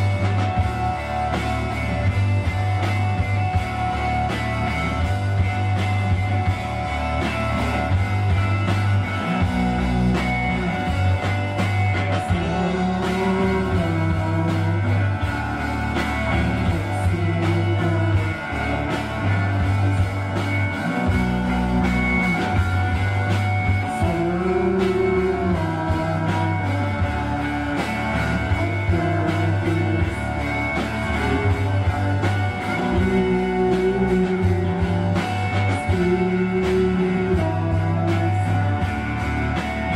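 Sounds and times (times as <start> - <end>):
bass guitar: 0.0 - 39.9
drums: 0.0 - 39.9
electric guitar: 0.0 - 39.9
person singing: 8.9 - 39.6.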